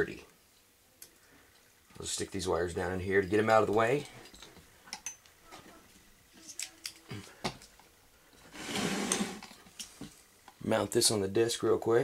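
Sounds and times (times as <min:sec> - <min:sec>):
metal disc scraping on bench: 0:08.5 - 0:09.6.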